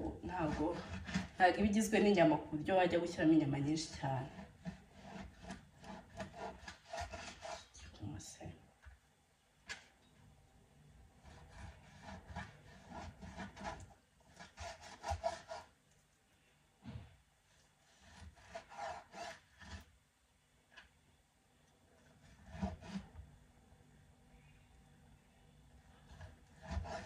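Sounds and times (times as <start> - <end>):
knife sawing through raw meat: 0.3 - 1.4, 4.0 - 7.8, 11.2 - 15.7, 17.9 - 19.8, 22.2 - 23.1, 26.5 - 27.0.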